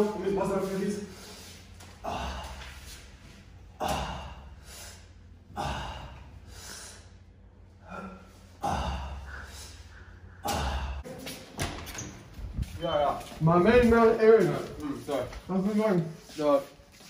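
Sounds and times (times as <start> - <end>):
heavy exertion breathing: 1.0 - 11.1.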